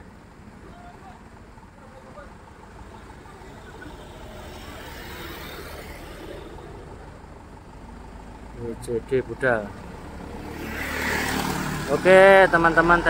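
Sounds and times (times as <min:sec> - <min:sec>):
vehicle passing by: 0:02.7 - 0:08.6, 0:09.3 - 0:13.0.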